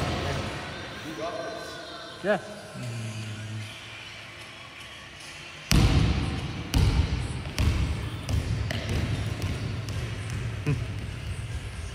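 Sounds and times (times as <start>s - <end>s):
ball bouncing on hall floor: 5.7s - 11.9s.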